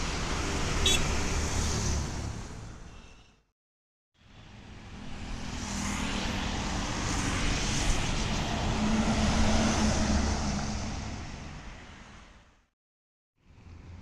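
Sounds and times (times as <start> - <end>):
bus passing by: 4.2 - 12.4.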